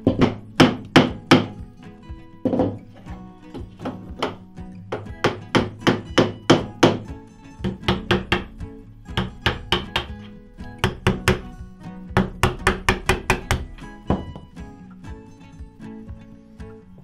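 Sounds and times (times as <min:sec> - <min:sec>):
mallet striking chisel: 0:00.0 - 0:01.6, 0:03.5 - 0:14.5.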